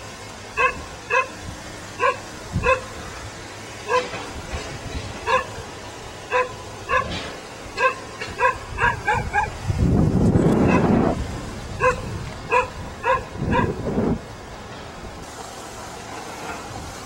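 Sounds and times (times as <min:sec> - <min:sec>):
dog barking: 0:00.6 - 0:01.3, 0:02.0 - 0:02.9, 0:03.9 - 0:04.1, 0:05.3 - 0:05.6, 0:06.3 - 0:07.2, 0:07.8 - 0:09.6, 0:10.6 - 0:10.9, 0:11.8 - 0:13.8.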